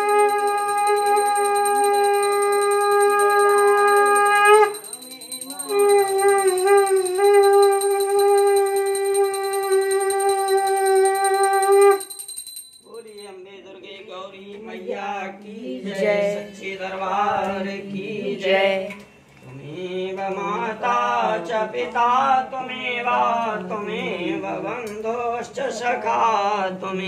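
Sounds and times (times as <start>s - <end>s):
conch shell blown: 0.0s - 4.9s, 5.6s - 12.1s
devotional chanting: 0.0s - 12.3s, 12.9s - 27.0s.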